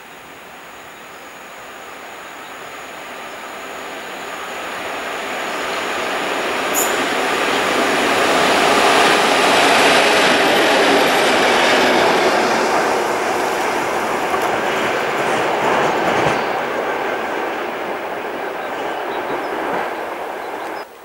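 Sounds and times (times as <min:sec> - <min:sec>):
locomotives rolling on rails: 0:04.6 - 0:20.9.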